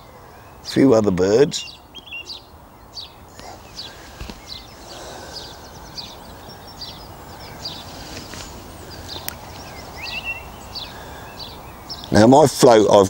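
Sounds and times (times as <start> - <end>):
small birds chirping: 0.0 - 13.0
thrush singing: 1.6 - 12.3.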